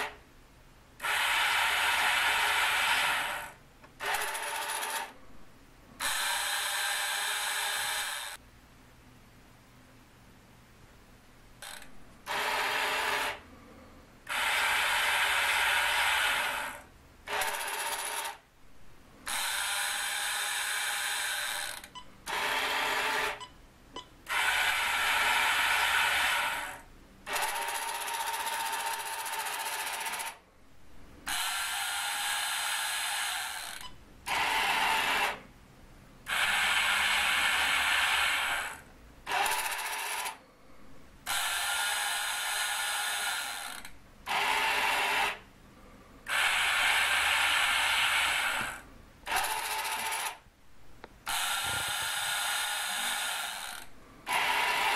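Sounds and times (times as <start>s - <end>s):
toy electric motors and gears: 1.0s - 5.2s, 6.0s - 8.4s, 11.6s - 13.4s, 14.2s - 18.4s, 19.2s - 23.5s, 24.3s - 30.4s, 31.2s - 35.4s, 36.2s - 40.4s, 41.2s - 45.4s, 46.2s - 50.4s, 51.2s - 54.9s.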